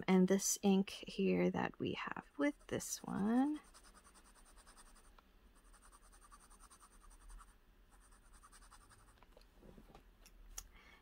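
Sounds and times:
pen nib scratching on paper: 2.4s - 9.2s.

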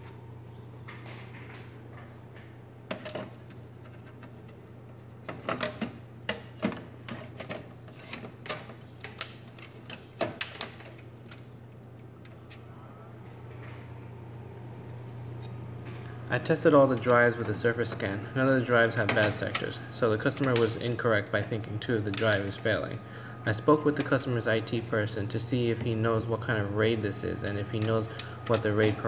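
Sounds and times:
low machine hum: 0.0s - 29.0s.

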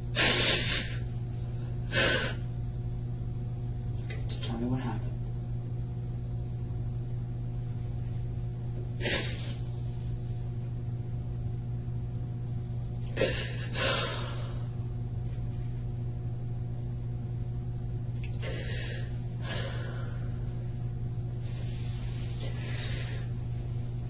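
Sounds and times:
steady low hum: 0.0s - 24.0s
person breathing: 13.2s - 14.8s, 18.4s - 20.5s, 21.4s - 23.4s.

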